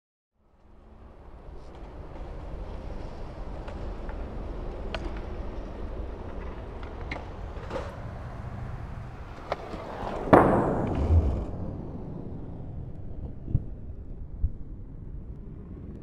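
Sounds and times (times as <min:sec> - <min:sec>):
skateboard wheels rolling on concrete: 0:00.5 - 0:16.0
low thud: 0:08.7 - 0:13.7
skateboard tail pop: 0:09.3 - 0:11.9.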